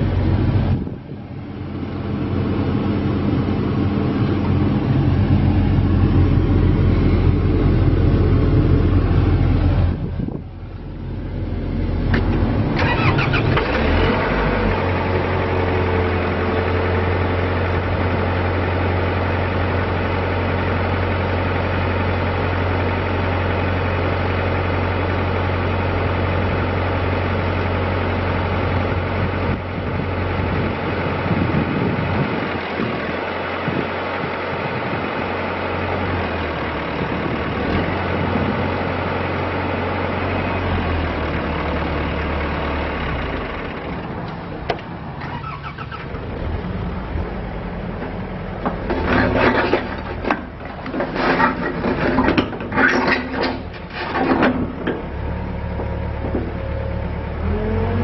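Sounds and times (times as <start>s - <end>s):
excavator diesel engine idling: 0.0s - 58.0s.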